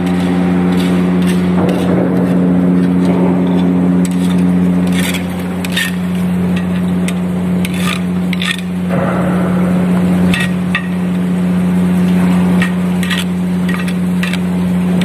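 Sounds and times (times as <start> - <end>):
machinery drone: 0.0 - 15.0
metal rod clinking and scraping: 0.1 - 8.7, 12.6 - 14.5.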